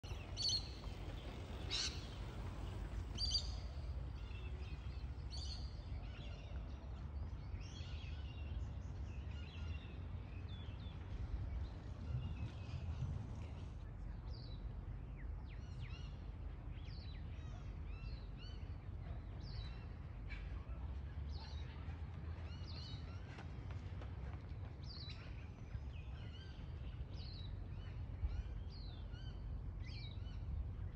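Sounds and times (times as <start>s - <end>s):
small birds chirping: 0.0s - 12.9s.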